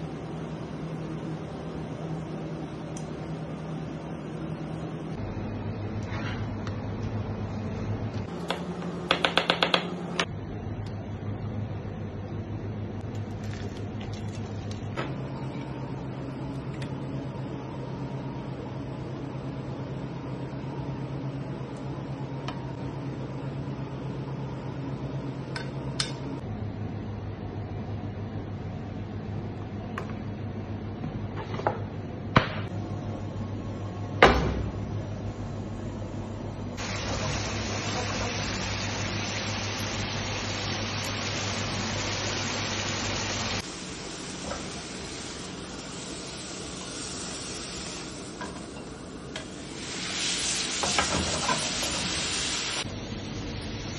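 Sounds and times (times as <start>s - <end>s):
machine hum: 0.0s - 31.4s, 32.0s - 50.1s
sauce hissing in a pan: 36.8s - 48.4s, 49.6s - 52.9s.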